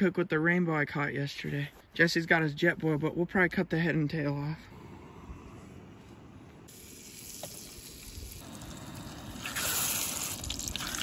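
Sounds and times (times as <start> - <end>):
camping stove burner hissing: 6.7 - 10.8.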